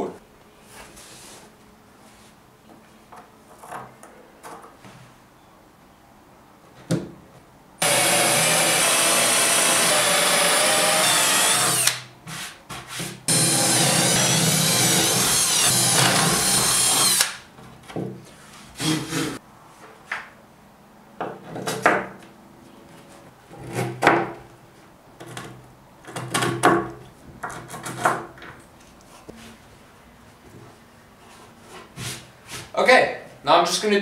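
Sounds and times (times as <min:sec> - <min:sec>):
cordless drill boring wood: 0:07.8 - 0:12.0, 0:13.3 - 0:17.4.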